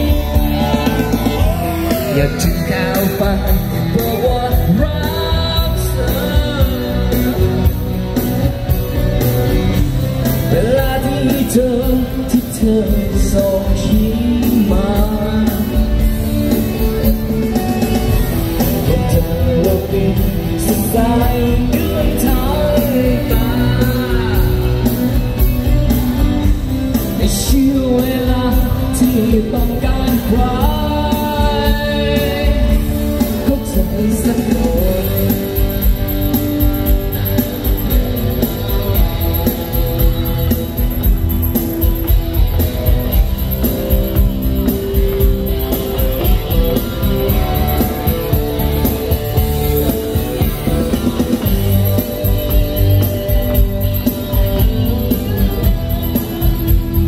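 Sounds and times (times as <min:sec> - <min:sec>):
man singing into microphone: 0:00.0 - 0:07.9, 0:10.2 - 0:17.2, 0:18.5 - 0:25.4, 0:26.9 - 0:36.1
electronic keyboard backing: 0:00.0 - 0:57.0.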